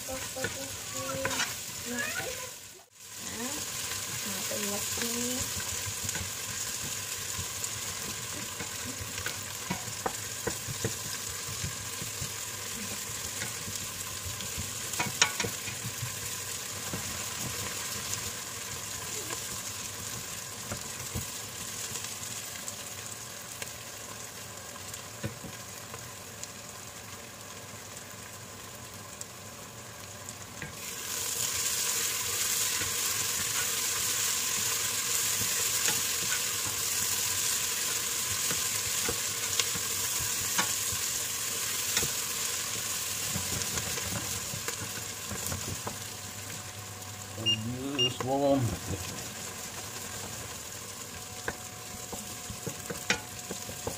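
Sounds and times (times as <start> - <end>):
onions sizzling in hot oil: 0.0 - 53.9
wooden spatula scraping a pot: 0.1 - 1.7.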